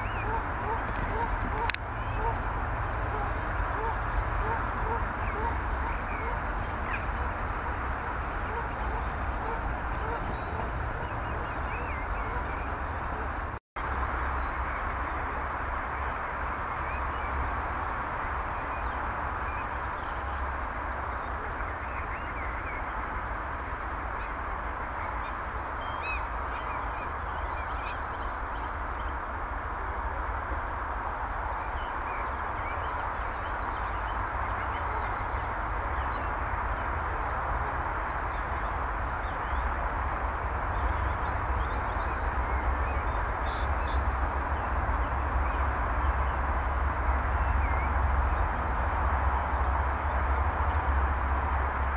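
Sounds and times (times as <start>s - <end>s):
wild birds chirping and whistling: 0.0s - 15.4s, 18.5s - 29.2s.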